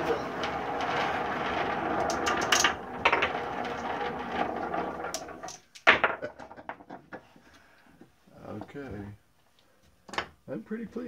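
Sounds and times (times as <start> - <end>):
marbles clacking on wood: 0.0 - 7.2
marbles rolling on wooden track: 0.0 - 7.4.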